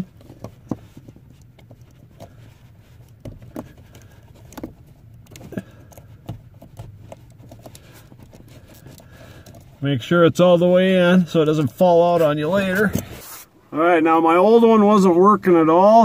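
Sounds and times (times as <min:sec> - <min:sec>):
small plastic clicks and knocks: 0:03.0 - 0:09.7.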